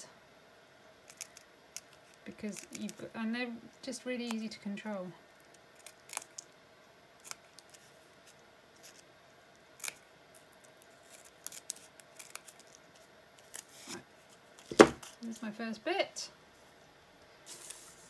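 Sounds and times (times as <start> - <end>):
loud thump: 14.7 - 15.0.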